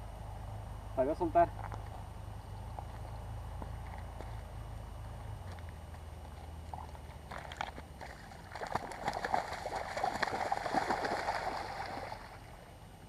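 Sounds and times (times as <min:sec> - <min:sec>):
fish splashing in shallow water: 0:06.7 - 0:12.7.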